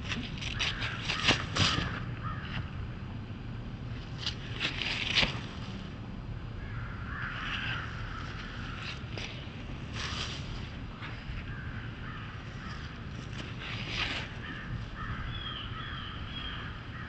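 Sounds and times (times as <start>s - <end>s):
footsteps crunching dry leaves: 0.0s - 2.4s, 7.2s - 15.2s
steady low rumble: 0.0s - 17.0s.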